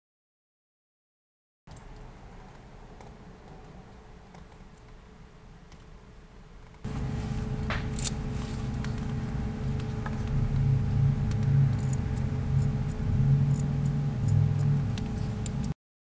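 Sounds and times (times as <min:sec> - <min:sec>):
faint constant hum: 0:01.7 - 0:15.8
steady low rumble: 0:06.8 - 0:15.8.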